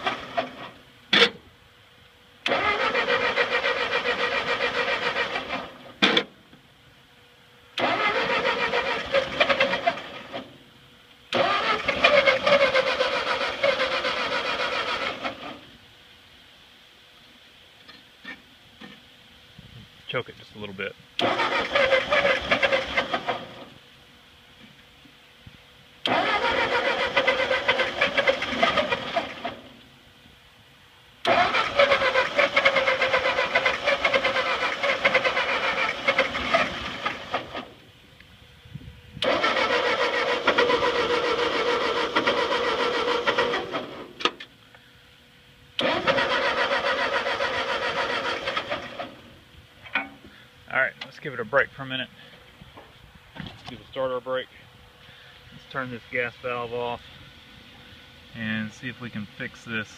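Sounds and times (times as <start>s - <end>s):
tractor engine cranking: 0.0s - 1.5s, 2.4s - 6.4s, 7.7s - 10.6s, 11.3s - 15.8s, 21.2s - 23.8s, 26.0s - 29.8s, 31.2s - 37.9s, 39.2s - 44.6s, 45.8s - 54.4s.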